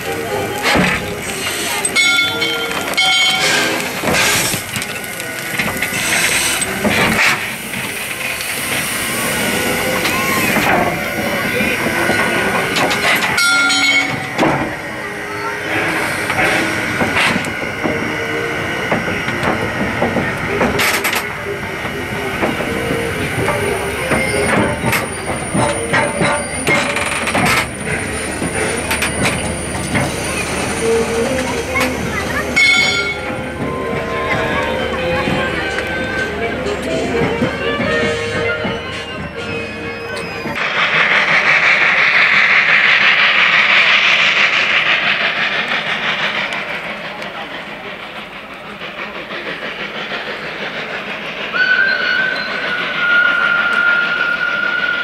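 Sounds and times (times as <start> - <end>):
steam locomotive hissing: 0.0 - 55.0
music: 35.2 - 40.5.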